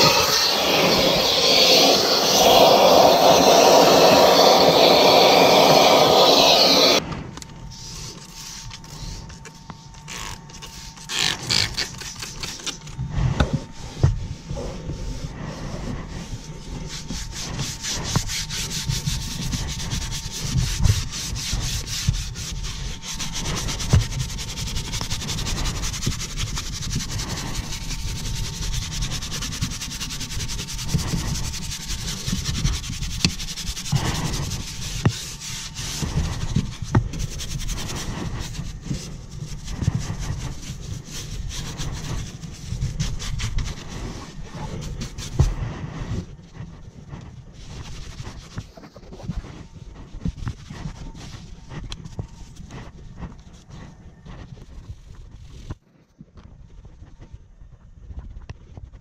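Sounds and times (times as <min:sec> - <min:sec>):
faint steady whine: 0:00.0 - 0:59.0
scrubbing against a surface: 0:10.1 - 0:55.7.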